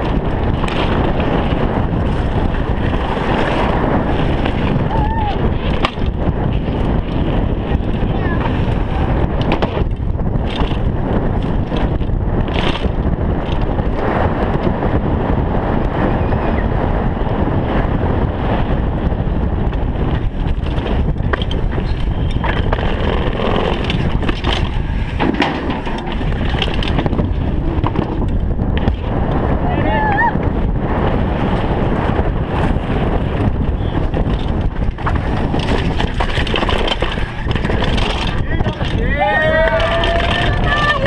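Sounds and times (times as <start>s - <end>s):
bike knocks and rattles: 0.0s - 16.0s, 18.0s - 29.6s, 30.5s - 41.0s
tyres roaring on trail: 0.0s - 41.0s
wind buffeting microphone: 0.0s - 41.0s.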